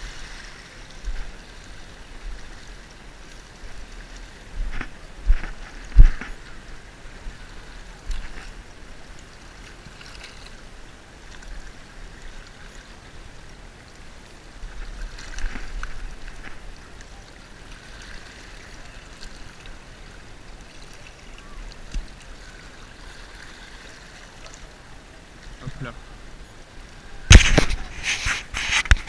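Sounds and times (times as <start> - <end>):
water lapping against rocks: 0.0 - 29.0
wind rumble on microphone: 3.6 - 8.7.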